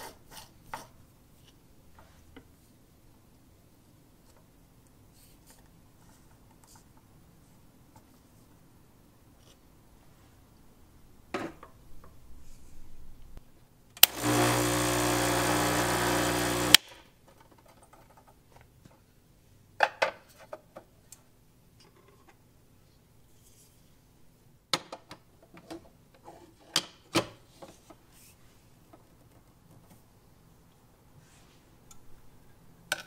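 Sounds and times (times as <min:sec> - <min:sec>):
espresso machine pump buzzing: 0:14.0 - 0:16.8.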